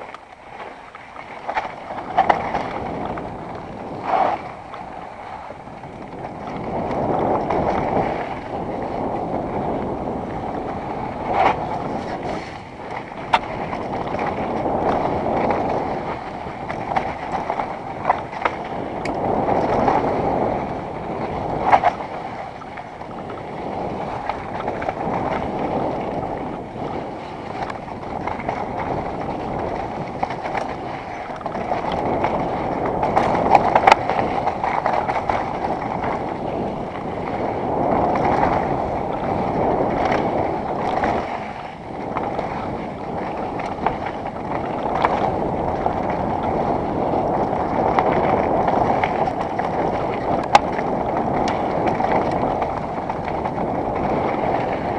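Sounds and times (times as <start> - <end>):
wind on microphone: 0.0 - 54.9
bike tyres rolling on dirt: 13.4 - 21.7.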